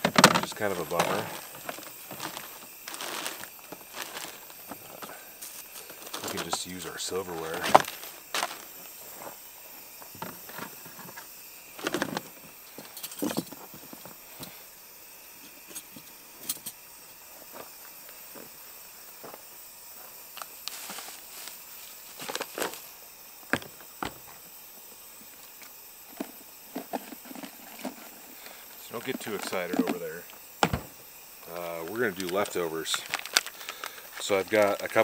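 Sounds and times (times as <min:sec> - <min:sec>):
rustling knocks: 0:30.6 - 0:31.0.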